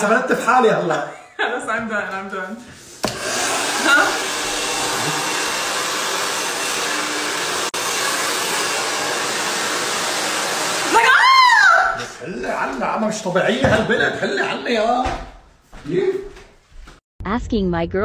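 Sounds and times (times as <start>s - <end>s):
hair dryer blowing: 2.8s - 14.1s
woman crying out: 11.0s - 12.1s.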